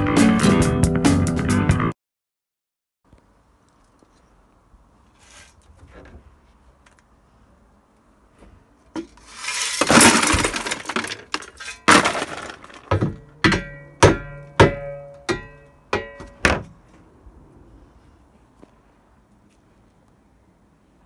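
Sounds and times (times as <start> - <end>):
plastic pieces clattering into bin: 9.2 - 13.0.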